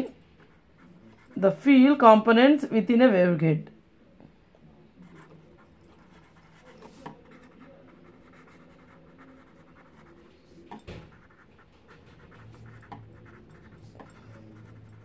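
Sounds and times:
pen scratching on paper: 0.4s - 1.6s, 5.0s - 15.0s.

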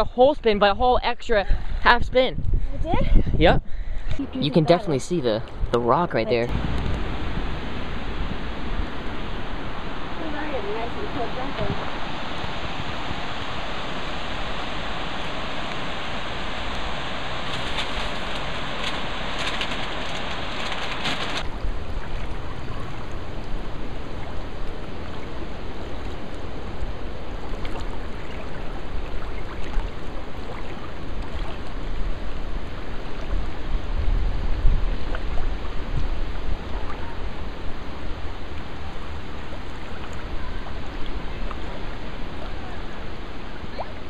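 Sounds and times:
river rapids rushing: 8.9s - 21.5s.

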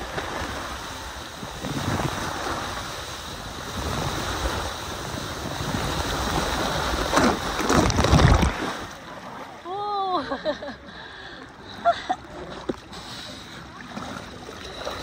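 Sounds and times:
water rushing and spraying: 0.0s - 9.8s
water splashing: 0.0s - 10.4s, 11.6s - 15.0s.

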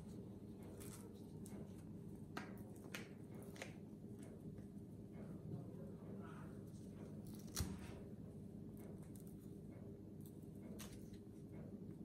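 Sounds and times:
low room hum: 0.0s - 12.0s
banana peel tearing: 7.2s - 8.0s.

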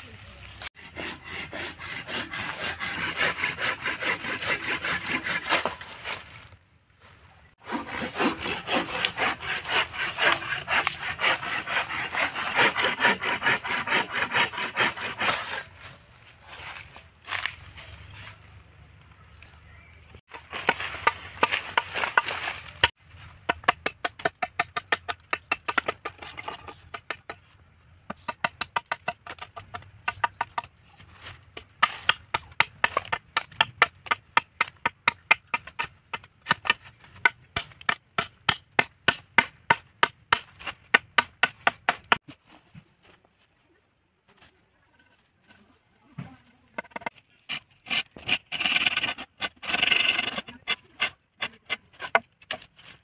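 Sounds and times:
machete chopping bamboo: 20.3s - 26.2s, 28.1s - 30.8s, 31.6s - 42.2s
scratchy noise: 46.8s - 52.2s.

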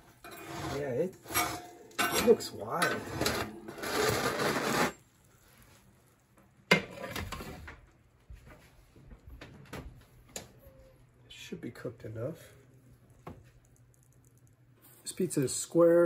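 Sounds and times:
pizza scraping on metal: 0.2s - 5.0s.

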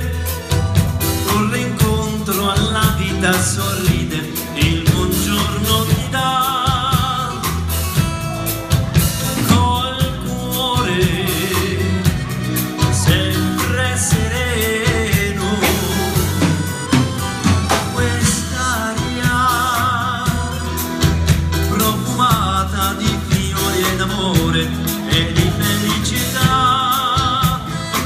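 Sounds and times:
accordion: 0.0s - 28.0s
drum kit beat: 0.0s - 28.0s
electric guitars: 0.0s - 28.0s
melody line: 0.1s - 28.0s.

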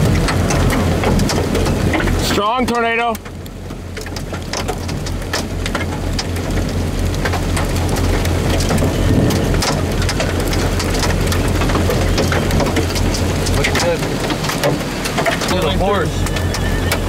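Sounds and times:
hail striking: 0.0s - 17.0s
low rumble: 0.0s - 17.0s
heavy rain hissing: 4.8s - 17.0s.

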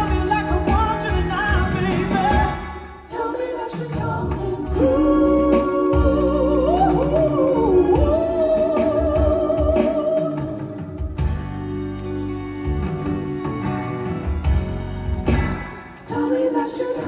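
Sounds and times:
vocal group singing harmony: 0.0s - 11.2s, 15.8s - 17.0s
band playing: 0.0s - 17.0s.

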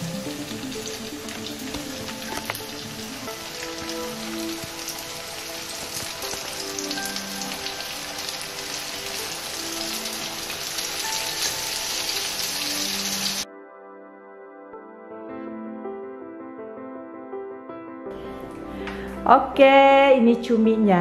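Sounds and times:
deep-frying sizzle and crackle: 0.0s - 13.4s
soft background music: 0.0s - 21.0s.

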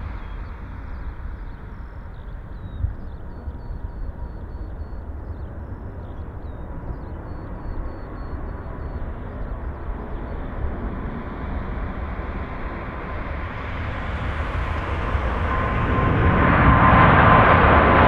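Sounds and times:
jet engines deep rumble: 0.0s - 18.0s.

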